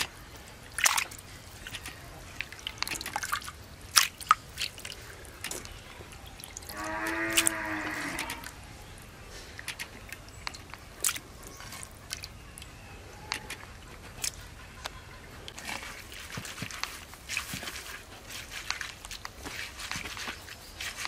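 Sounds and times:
water splashing in a bowl: 0:00.0 - 0:08.6, 0:09.6 - 0:14.4, 0:15.5 - 0:21.0.

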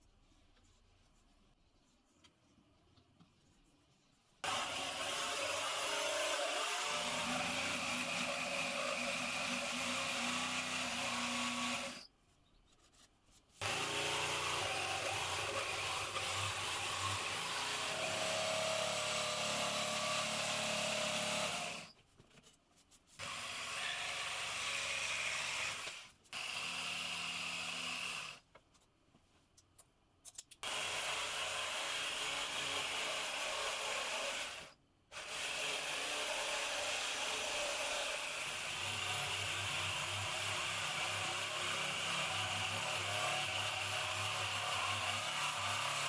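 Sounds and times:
jigsaw sawing through wood: 0:04.4 - 0:12.1, 0:13.6 - 0:22.0, 0:23.2 - 0:28.4, 0:30.6 - 0:46.0.

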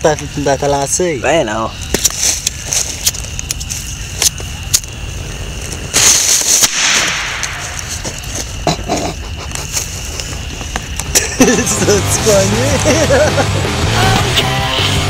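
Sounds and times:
firecracker bang: 0:05.9 - 0:09.2.

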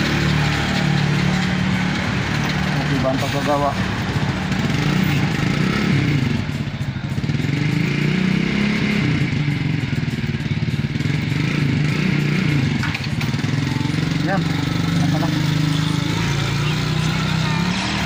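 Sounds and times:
small engine idling: 0:00.0 - 0:18.0.

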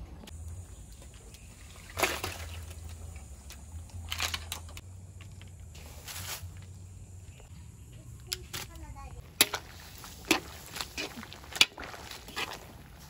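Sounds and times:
vegetables splashing into water: 0:01.8 - 0:02.9.

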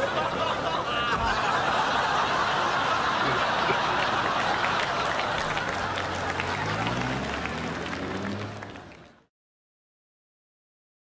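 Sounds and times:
audience laughing: 0:00.0 - 0:08.9
applause: 0:03.2 - 0:09.3.

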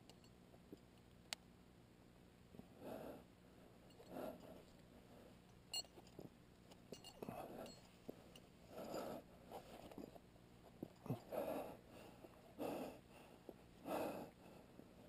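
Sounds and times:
soft breathing: 0:02.6 - 0:05.5, 0:07.2 - 0:15.0.

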